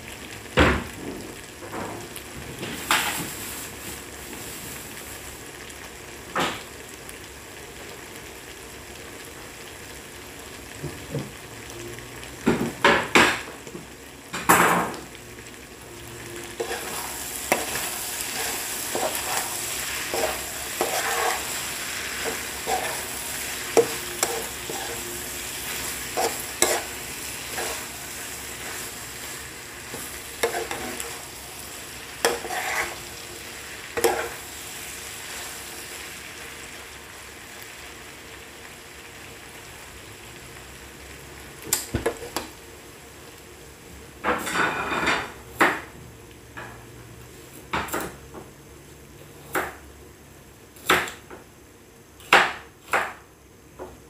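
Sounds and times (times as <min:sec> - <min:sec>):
food sizzling in a frying pan: 0:00.0 - 0:54.0
spoon scraping and tapping pan: 0:20.1 - 0:21.5, 0:23.7 - 0:25.0, 0:26.1 - 0:26.9, 0:29.9 - 0:31.2.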